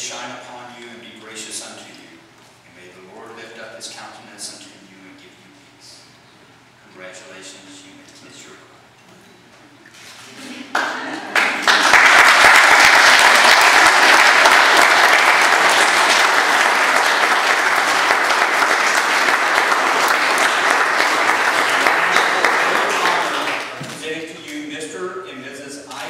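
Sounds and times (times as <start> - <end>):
guests applauding: 10.7 - 24.0.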